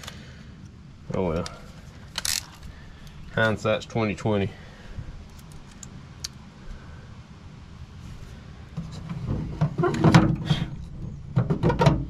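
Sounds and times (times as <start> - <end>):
plug knocking and scraping on metal: 11.3 - 12.0.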